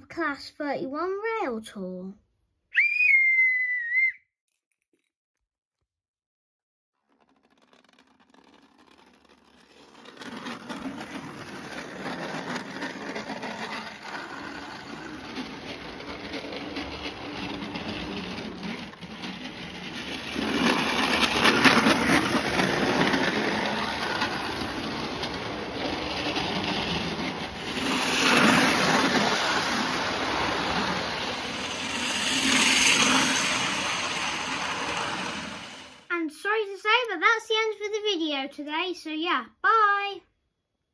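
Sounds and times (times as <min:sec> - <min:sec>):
model trains whirring and clattering: 0:07.2 - 0:36.1
wheels clicking on rails: 0:07.2 - 0:36.1.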